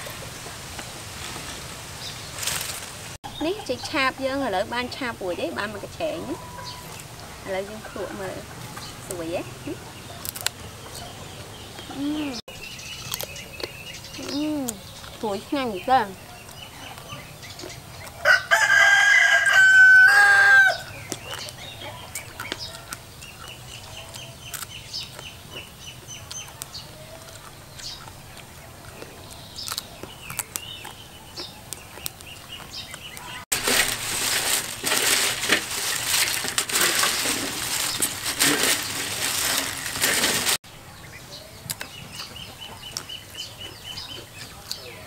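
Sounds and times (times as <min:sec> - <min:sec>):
loud crackling rustling noise: 0:00.0 - 0:03.2, 0:31.7 - 0:40.6
faint chicken calls: 0:06.0 - 0:12.4, 0:16.2 - 0:24.6
rooster crowing: 0:18.2 - 0:20.9.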